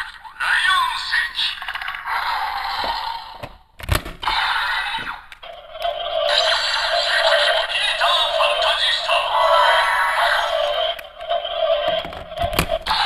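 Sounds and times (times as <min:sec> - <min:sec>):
toy electronic sound effects: 0:04.2 - 0:13.0
looping standby tune: 0:05.5 - 0:13.0.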